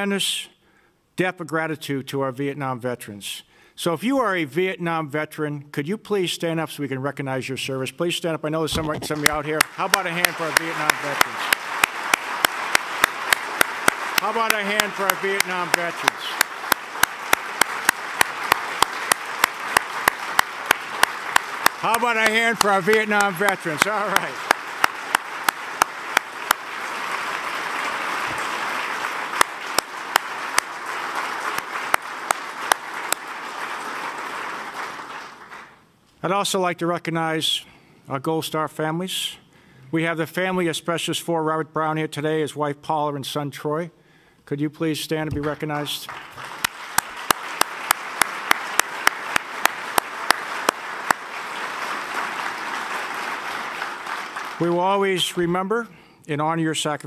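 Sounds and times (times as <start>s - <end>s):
crowd applauding: 9.1s - 35.8s, 45.4s - 55.3s
sharp rhythmic single claps: 9.1s - 35.8s, 46.1s - 54.6s.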